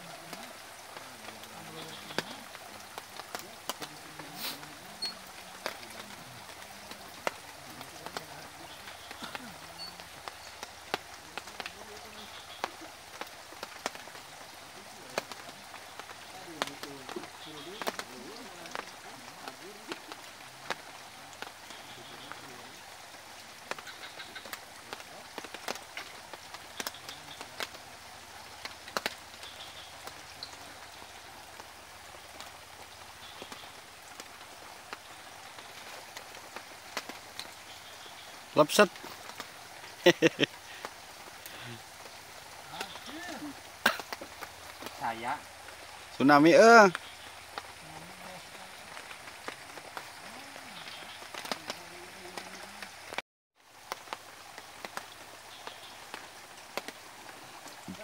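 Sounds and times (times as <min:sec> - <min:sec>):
light rain falling: 0:00.0 - 0:58.0
steady hiss with clicks: 0:00.0 - 0:58.0.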